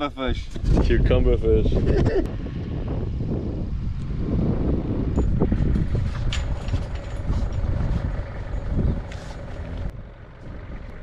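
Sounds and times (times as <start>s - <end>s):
steady low rumble: 0.0s - 11.0s
metal gate swinging shut: 5.2s - 8.8s.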